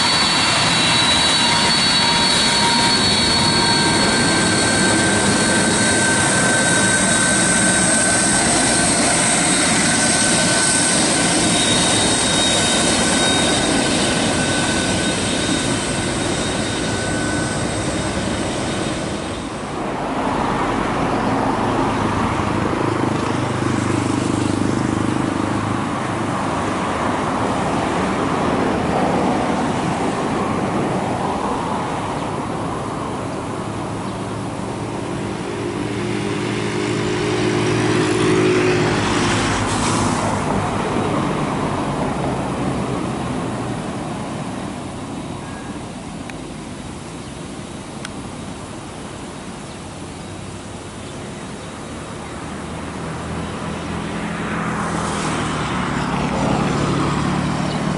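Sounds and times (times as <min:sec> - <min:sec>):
high jet whine: 0:00.0 - 0:57.9
jet engines running: 0:00.0 - 0:57.9.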